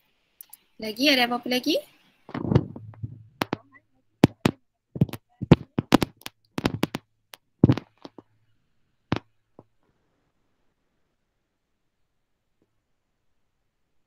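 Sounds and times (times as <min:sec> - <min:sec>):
sharp clicks and taps: 0:02.3 - 0:08.2.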